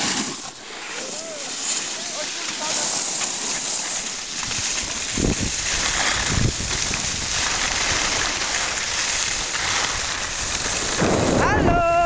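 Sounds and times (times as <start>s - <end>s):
skis sliding over snow: 0.0s - 12.0s
wind buffeting microphone: 4.4s - 12.0s.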